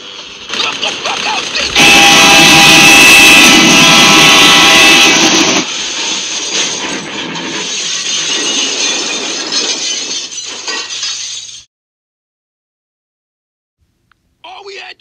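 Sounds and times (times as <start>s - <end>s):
rattling crash: 5.3s - 11.7s
glass clinking: 7.6s - 11.6s.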